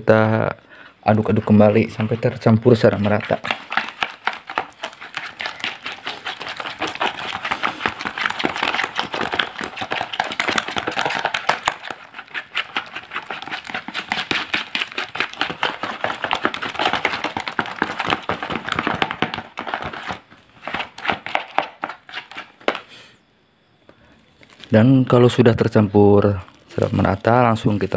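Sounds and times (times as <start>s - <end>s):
spoon stirring wet batter: 1.1s - 22.9s.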